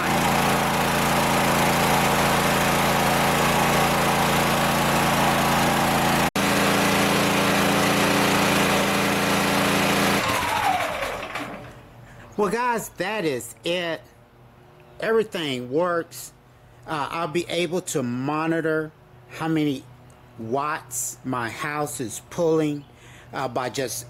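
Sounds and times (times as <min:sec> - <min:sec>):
generator engine running: 0:00.0 - 0:12.9.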